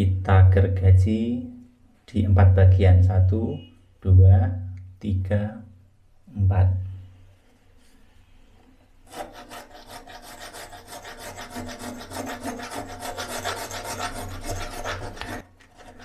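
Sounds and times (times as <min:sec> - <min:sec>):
hacksaw sawing metal: 0:09.0 - 0:16.0.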